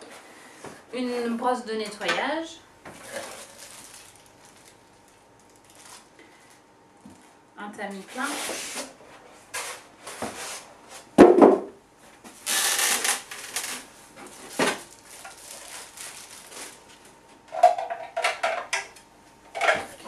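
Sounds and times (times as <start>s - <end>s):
packing material rustling: 3.0s - 6.6s, 12.4s - 17.3s.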